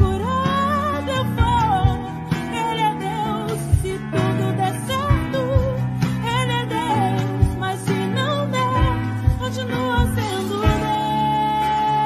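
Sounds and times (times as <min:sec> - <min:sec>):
low drum beats: 0:00.0 - 0:11.2
person singing with vibrato: 0:00.0 - 0:12.0.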